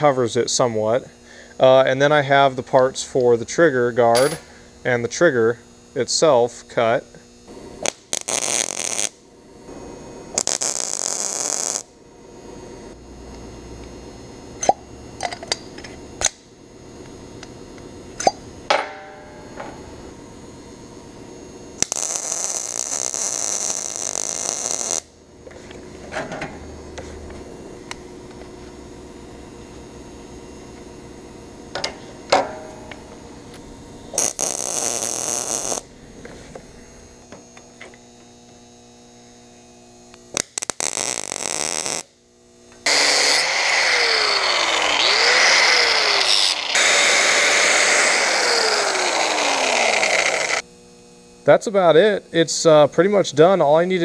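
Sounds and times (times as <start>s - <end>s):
metal clinks and knocks: 4.2s - 4.4s
welder crackling hiss: 7.6s - 9.2s, 10.3s - 11.9s, 21.8s - 25.2s, 34.1s - 38.6s, 39.5s - 42.1s, 42.8s - 50.7s
angle grinder: 10.3s - 11.9s, 32.9s - 38.3s, 42.8s - 50.7s.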